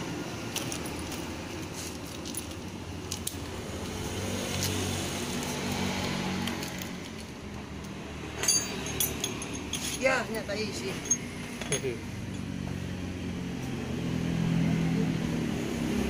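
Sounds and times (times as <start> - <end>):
vehicle engine humming: 0.0 - 16.0
metal tools clinking: 8.4 - 12.6.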